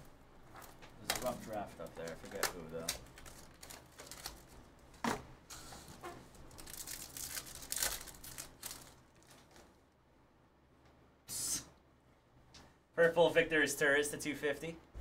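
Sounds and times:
foil wrapper crinkling and tearing: 0:00.5 - 0:04.6, 0:06.2 - 0:09.7.

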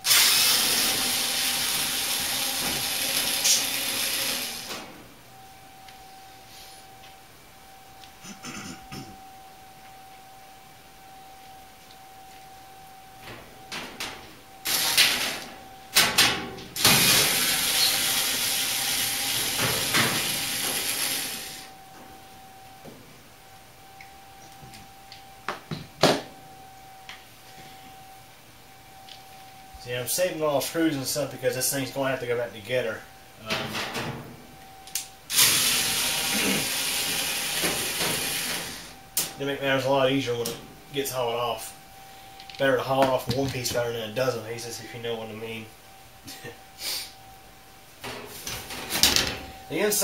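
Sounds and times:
cordless drill running: 0:00.0 - 0:04.7, 0:17.1 - 0:21.7, 0:35.3 - 0:38.5
loud steady hiss: 0:00.0 - 0:05.0, 0:14.6 - 0:21.8, 0:35.2 - 0:39.9, 0:46.7 - 0:47.3.

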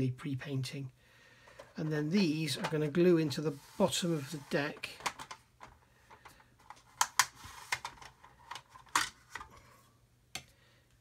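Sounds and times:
plastic parts clicking and tapping: 0:04.8 - 0:09.6.

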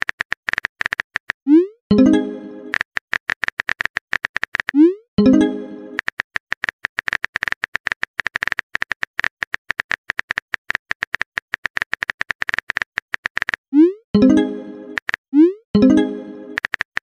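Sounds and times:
phone keyboard typing clicks: 0:02.0 - 0:13.6, 0:15.8 - 0:17.0.

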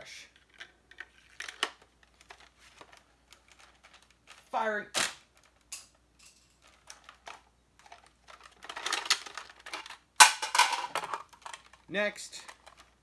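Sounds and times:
plastic toy blaster clicking and rattling: 0:06.6 - 0:10.0.

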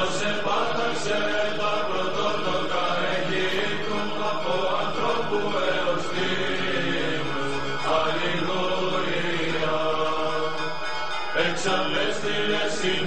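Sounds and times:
choir chanting over drone note: 0:00.0 - 0:13.0.

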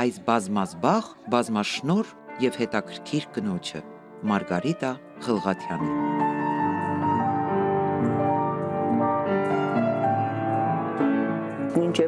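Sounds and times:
slow gentle piano music: 0:01.0 - 0:12.0.

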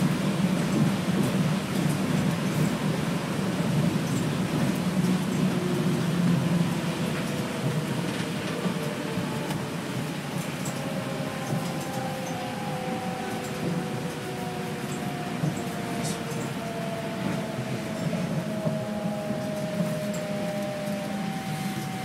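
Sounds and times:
tyres rumbling on guideway: 0:00.0 - 0:22.0.

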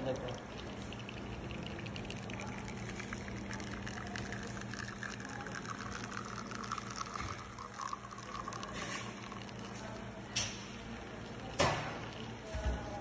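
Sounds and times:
espresso trickling into cup: 0:00.0 - 0:10.0
espresso machine pump hum: 0:00.0 - 0:13.0.

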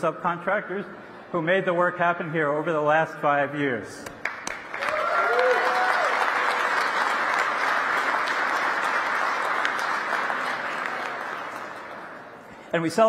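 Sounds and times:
audience applauding: 0:04.2 - 0:12.4.

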